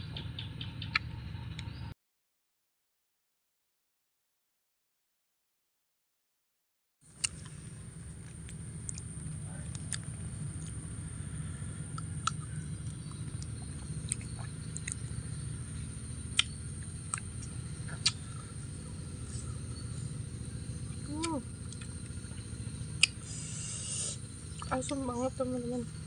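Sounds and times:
low background hum: 7.1 - 26.0
person chewing crunchy fruit: 12.0 - 15.1, 16.1 - 20.2.

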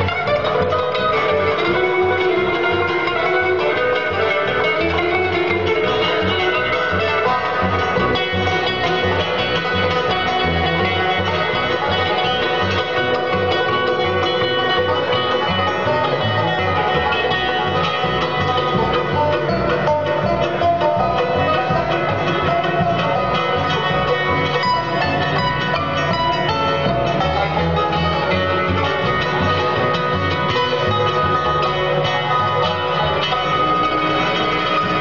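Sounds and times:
guitar: 0.0 - 35.0
rapid banjo picking: 0.0 - 35.0.

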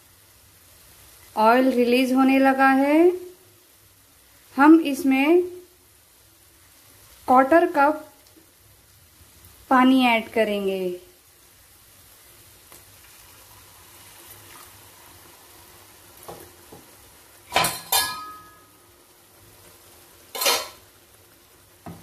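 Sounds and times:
faint sizzling in a pan: 0.0 - 22.0
metal utensil clanking against pan: 17.5 - 18.6, 20.3 - 20.8.

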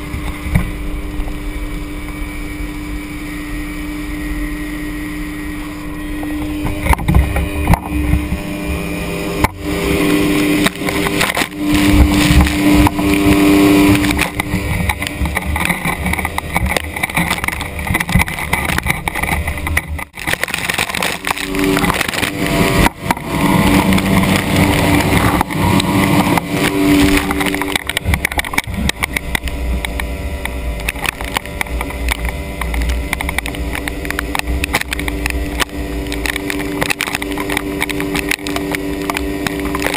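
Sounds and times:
outboard motor running hard: 0.0 - 39.9
water spray splashing at hull: 6.7 - 30.0.

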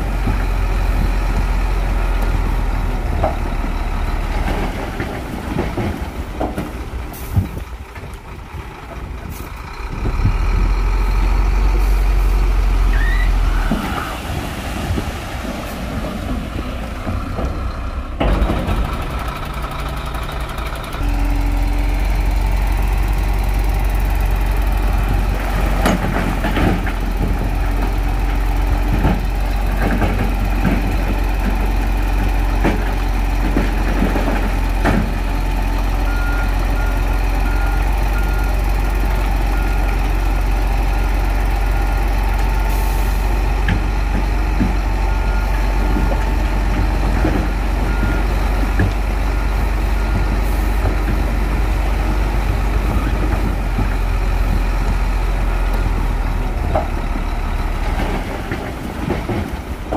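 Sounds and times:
heavy diesel machinery running: 0.0 - 59.9.

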